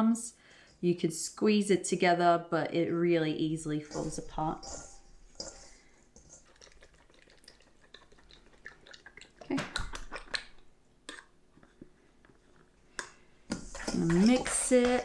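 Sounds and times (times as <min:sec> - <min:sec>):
fork clinking and scraping bowl: 0:03.6 - 0:08.8, 0:13.5 - 0:15.0.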